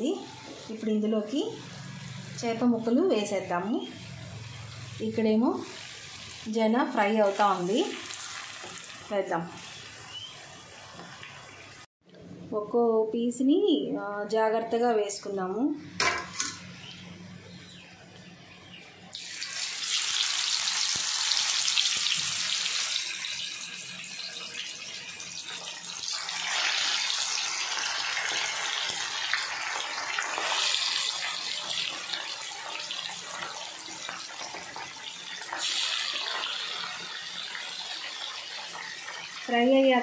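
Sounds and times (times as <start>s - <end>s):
fish sizzling in hot oil: 3.9s - 11.9s, 19.1s - 40.0s.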